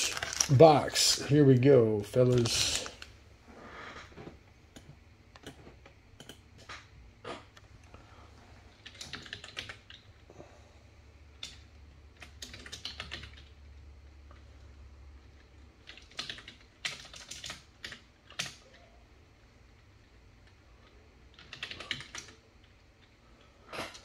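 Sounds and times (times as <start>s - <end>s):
computer keyboard typing: 6.2s - 6.7s, 8.8s - 10.2s, 11.3s - 13.6s, 15.2s - 18.9s, 20.4s - 23.1s.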